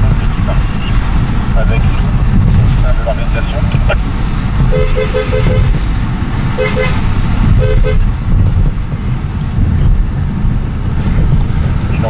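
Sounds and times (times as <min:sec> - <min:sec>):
road and engine rumble in car: 0:00.0 - 0:12.0
car horn toots: 0:04.6 - 0:05.8, 0:06.5 - 0:08.1.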